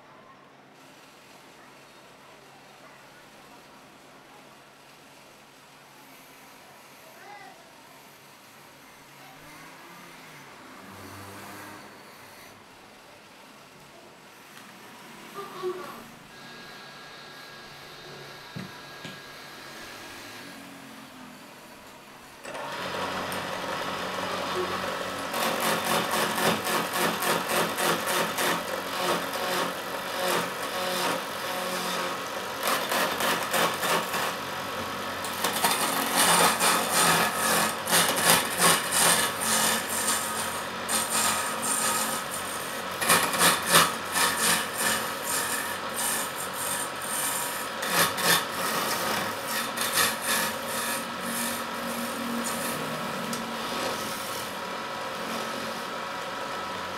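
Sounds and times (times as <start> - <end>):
lathe humming: 14.6 - 56.9
chisel scraping spinning wood: 22.5 - 56.0.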